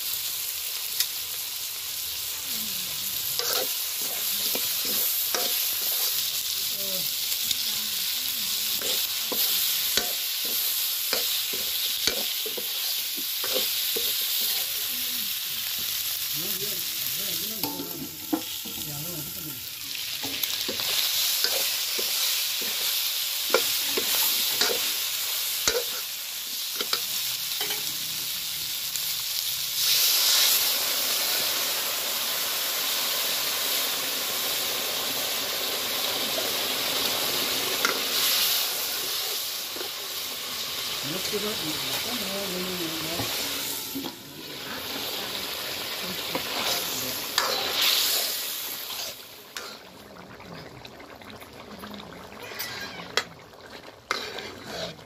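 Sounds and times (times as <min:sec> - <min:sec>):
food sizzling in wok: 0:00.0 - 0:55.0
metal ladle scraping pan: 0:03.4 - 0:06.3, 0:17.6 - 0:22.9, 0:46.2 - 0:49.9, 0:52.4 - 0:55.0
water poured into hot wok: 0:17.6 - 0:55.0.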